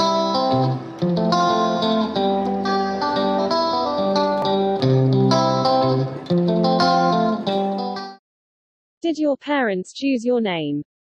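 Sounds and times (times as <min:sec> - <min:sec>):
picked guitar chords: 0:00.0 - 0:08.2.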